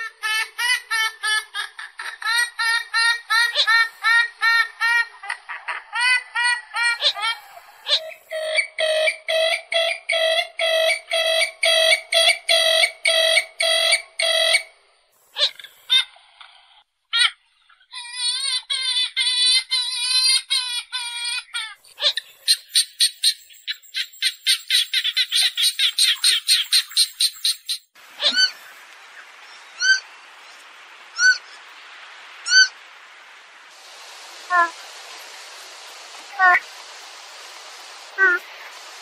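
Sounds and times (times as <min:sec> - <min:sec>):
faint hiss: 0:27.9 - 0:39.0.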